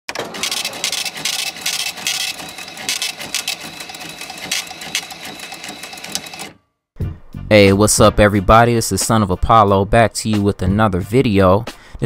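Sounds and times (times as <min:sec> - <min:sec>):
mechanical clicking and rattling: 0:00.1 - 0:06.5.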